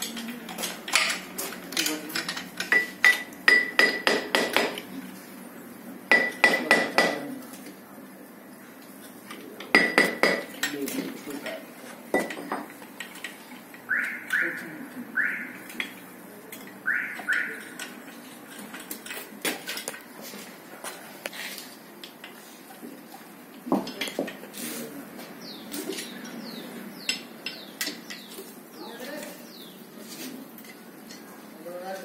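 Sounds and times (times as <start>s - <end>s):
spanners clinking on metal: 0.0s - 4.7s, 15.6s - 20.0s, 27.0s - 28.4s
birds chirping: 13.3s - 15.9s, 16.8s - 18.2s, 25.3s - 30.0s.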